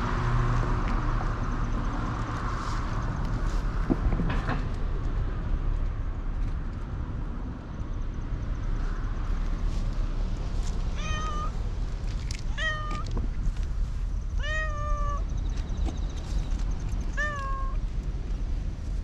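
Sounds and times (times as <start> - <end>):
steady low rumble: 0.0 - 19.0
cat meowing: 11.0 - 11.6, 12.5 - 13.1, 14.4 - 15.2, 17.1 - 17.8.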